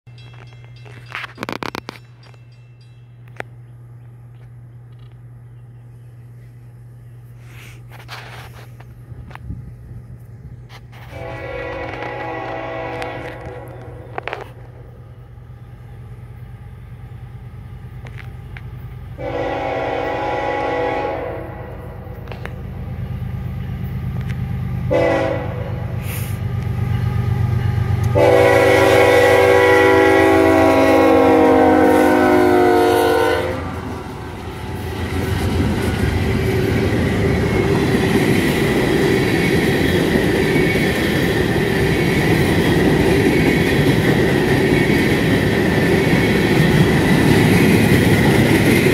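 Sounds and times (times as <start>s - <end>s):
freight cars rolling on rails: 0.1s - 5.5s, 7.8s - 19.3s, 22.0s - 48.9s
locomotive engine rumble: 0.1s - 48.9s
locomotive air horn blasts: 10.9s - 14.6s, 19.2s - 22.4s, 24.9s - 26.4s, 28.1s - 34.0s.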